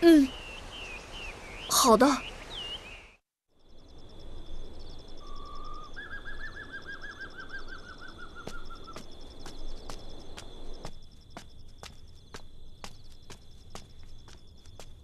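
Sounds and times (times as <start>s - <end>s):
insects chirping: 0.2s - 15.0s
footsteps: 8.4s - 15.0s.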